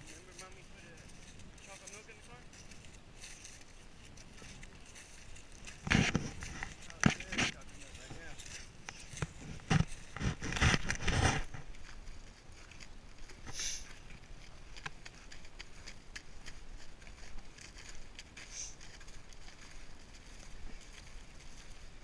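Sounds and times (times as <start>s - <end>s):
soft rustling: 0.0s - 22.0s
camera handling knocks and scrapes: 9.4s - 11.5s.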